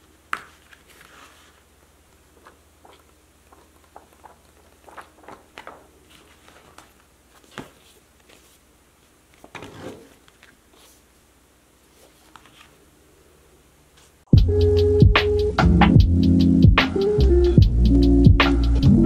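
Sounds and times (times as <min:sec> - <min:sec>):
paper pages rustling and flicking: 0:00.3 - 0:08.6, 0:09.3 - 0:11.0, 0:11.9 - 0:12.8.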